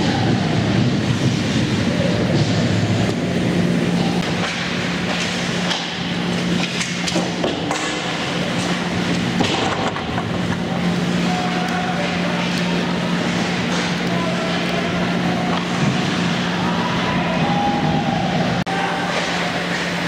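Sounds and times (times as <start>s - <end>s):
steady low hum: 0.0s - 20.0s
clacks of sticks and puck: 4.2s - 8.8s.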